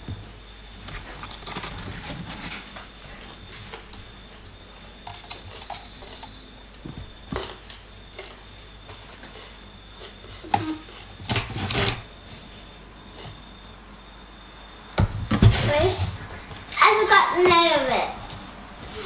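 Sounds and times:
hand rummaging in cardboard box: 0.8s - 3.3s.

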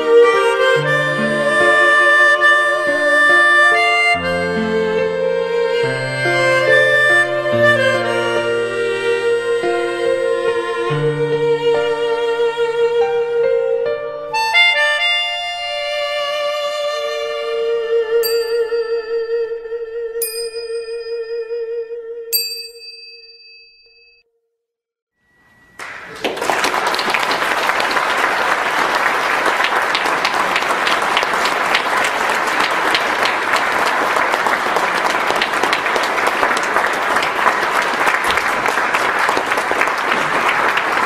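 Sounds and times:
music note ringing: 18.2s - 19.6s, 20.2s - 24.2s, 25.2s - 26.1s
audience applause: 25.8s - 41.0s.

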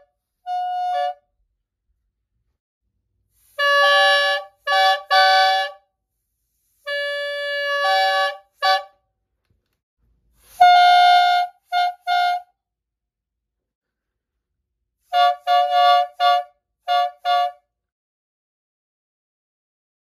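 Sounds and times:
toy train air horn blasts: 0.0s - 1.3s, 3.3s - 5.9s, 6.5s - 9.0s, 10.4s - 12.6s, 15.0s - 17.7s.

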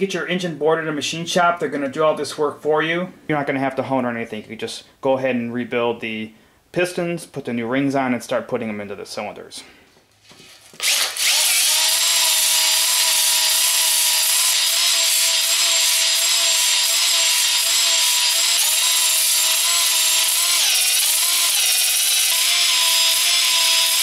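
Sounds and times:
cordless drill motor whine: 10.7s - 24.0s.

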